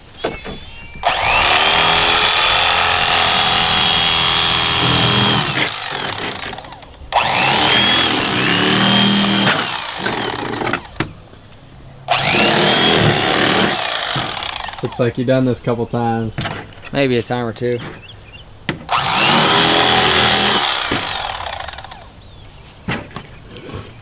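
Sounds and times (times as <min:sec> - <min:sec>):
electric knife motor whine: 0:01.0 - 0:11.0, 0:12.1 - 0:15.0, 0:18.9 - 0:22.1.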